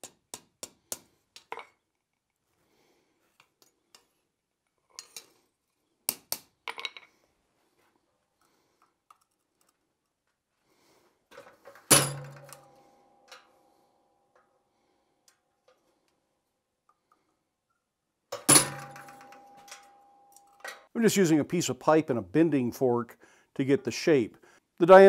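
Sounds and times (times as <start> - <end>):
metal tools clanking on anvil: 11.9 - 13.5, 18.4 - 20.9.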